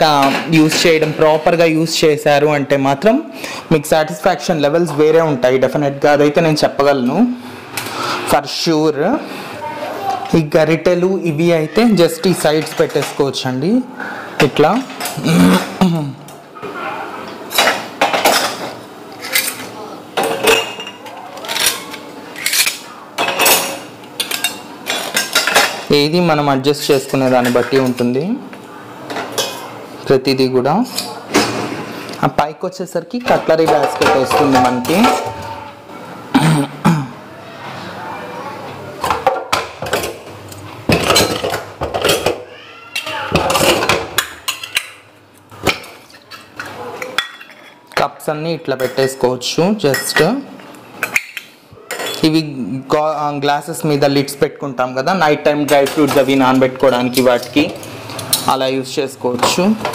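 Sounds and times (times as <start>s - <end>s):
kitchen utensils clattering in dishwasher: 0.1s - 1.6s, 12.0s - 13.4s, 17.5s - 28.3s, 33.2s - 35.8s, 39.0s - 42.4s, 43.0s - 45.0s, 45.6s - 47.9s, 48.8s - 50.4s, 55.5s - 59.9s.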